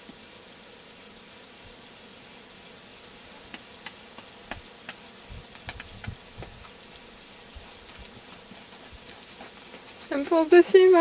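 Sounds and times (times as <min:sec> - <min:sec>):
horse hooves on sand: 0:03.5 - 0:11.0.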